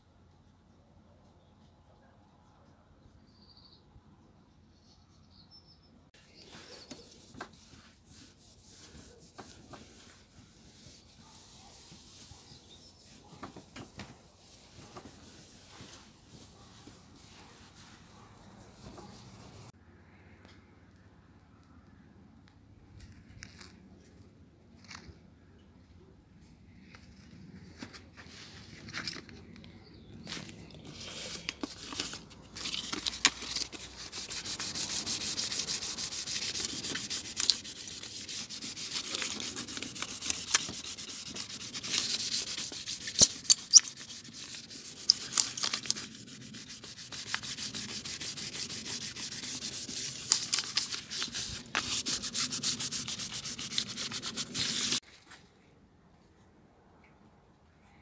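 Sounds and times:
handling rustles: 27.0s - 55.6s
sandpaper scratching metal wheel: 31.1s - 55.0s.

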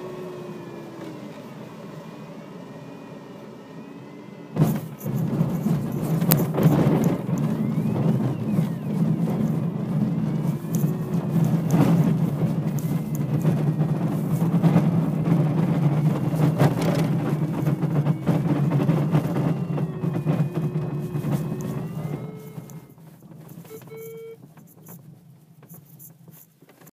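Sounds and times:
wheel rolling over grass: 4.6s - 26.9s
short tone: 20.8s - 22.9s, 23.6s - 24.4s.

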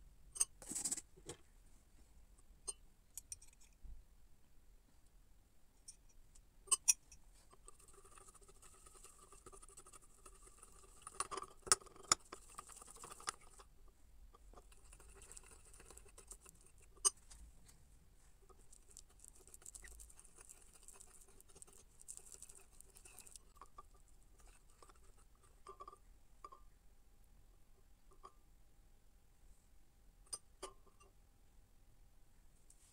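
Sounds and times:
spoon whipping coffee in a cup: 7.5s - 13.7s, 14.4s - 17.2s, 18.5s - 26.0s.

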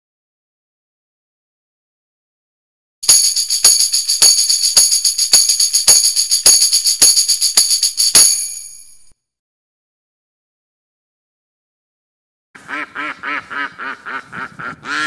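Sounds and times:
tambourine jingles ringing: 3.0s - 9.1s
tambourine strikes: 3.0s - 9.1s.

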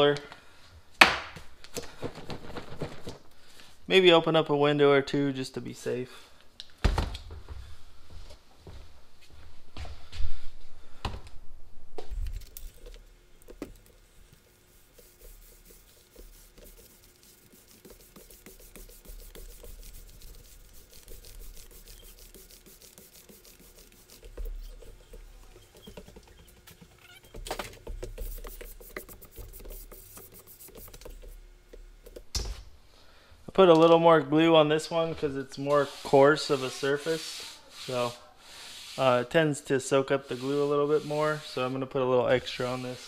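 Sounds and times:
paint roller sticky crackle: 12.3s - 31.4s.

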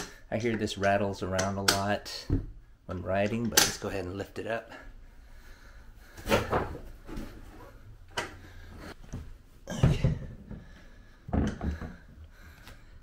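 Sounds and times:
dull knocks and thumps: 9.1s - 12.2s.

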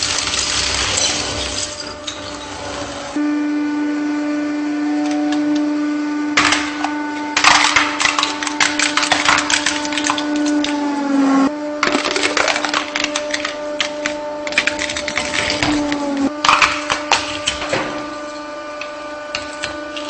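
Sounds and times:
hydraulic press motor hum: 1.5s - 20.0s
plastic cracking and snapping: 11.8s - 17.6s.

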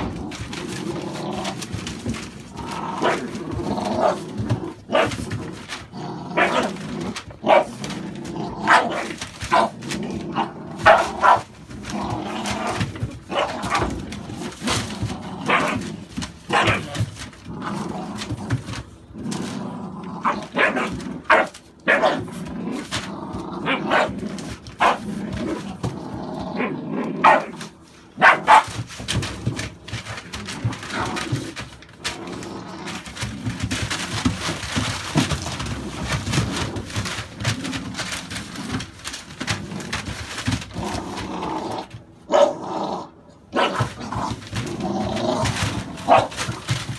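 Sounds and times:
newspaper rustling: 0.0s - 26.2s, 27.3s - 42.1s, 43.6s - 46.9s
puppies growling: 0.0s - 46.9s
puppies yappy barks: 10.8s - 11.4s, 28.2s - 28.8s.

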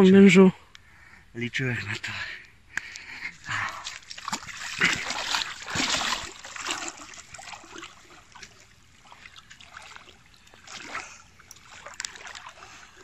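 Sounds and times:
water dripping: 2.7s - 13.0s
water splashing and trickling: 2.8s - 13.0s.

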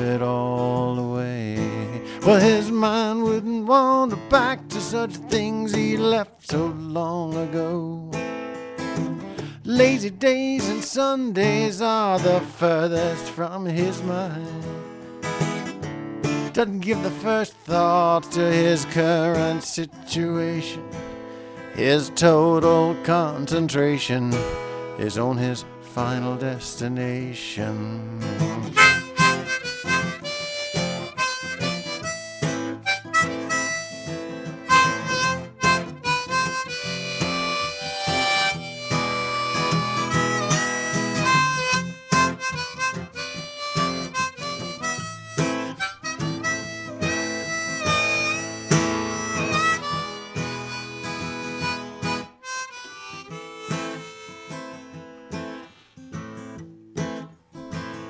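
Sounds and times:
acoustic guitar accompaniment: 0.0s - 58.0s
harmonica solo: 28.7s - 55.8s.

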